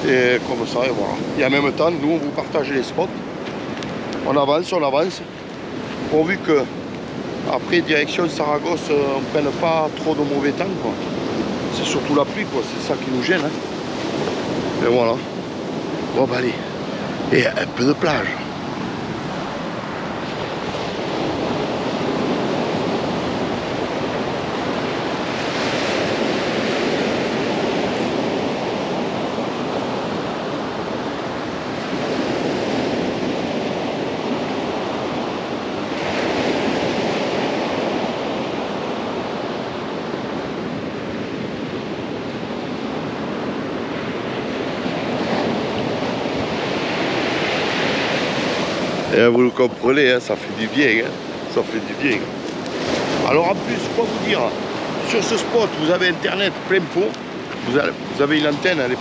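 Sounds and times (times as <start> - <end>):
sea surf breaking on beach: 0.0 - 59.0.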